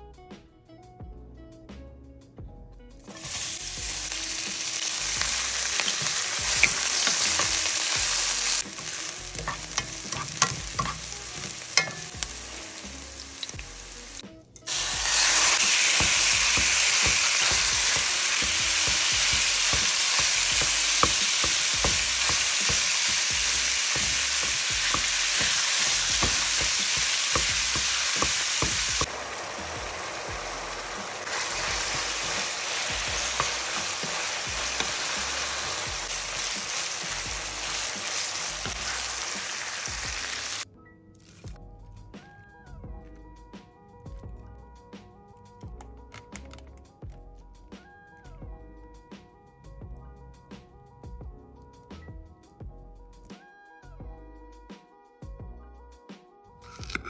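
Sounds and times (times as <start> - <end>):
food sizzling in hot oil: 3.0 - 40.6.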